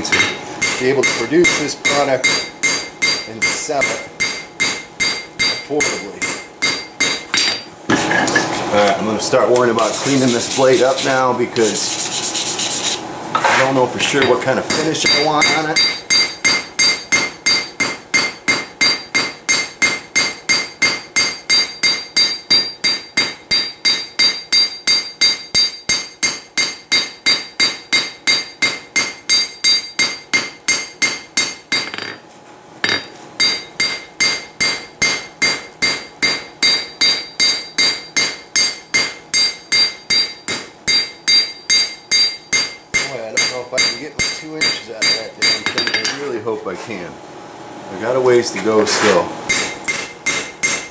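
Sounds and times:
hammer striking ringing anvil: 0.1 - 7.7, 14.2 - 32.2, 32.8 - 46.2, 49.5 - 50.9.

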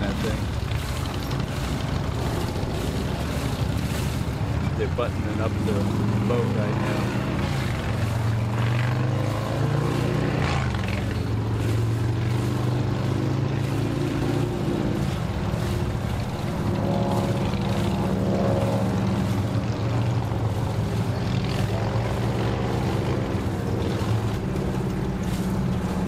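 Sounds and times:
higher engine note: 0.0 - 26.0
outboard motors idling: 0.0 - 26.0.

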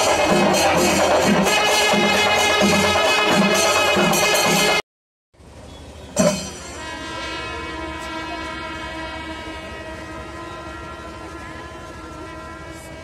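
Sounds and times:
crowd noise: 0.0 - 4.8, 5.5 - 13.0
horn-like held chord: 6.6 - 13.0.

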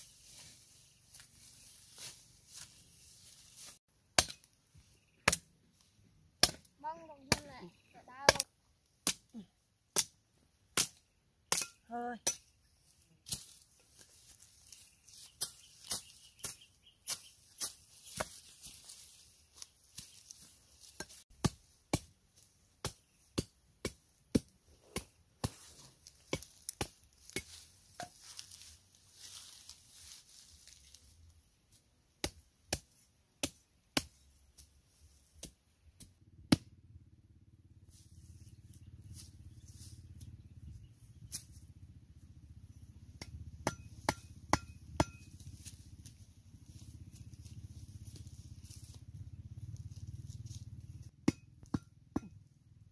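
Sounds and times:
machete chopping wood: 4.1 - 4.5, 5.2 - 5.5, 6.4 - 6.7, 8.3 - 12.5, 21.0 - 22.2, 22.8 - 25.6, 35.4 - 36.7, 43.2 - 45.3, 51.2 - 52.4
low steady rumble: 35.8 - 52.9.

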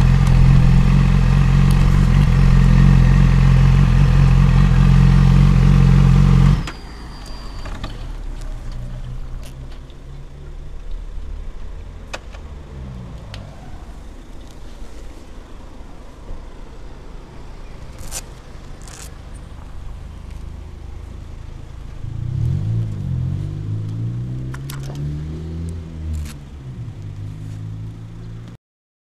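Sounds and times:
low rumble: 0.0 - 6.2.

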